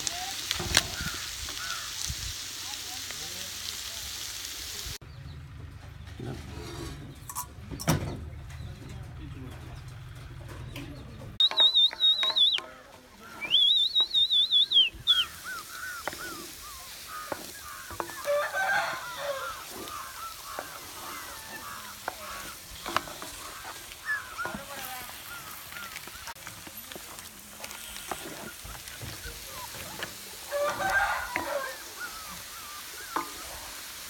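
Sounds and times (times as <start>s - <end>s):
high warbling bird call: 11.4s - 26.4s.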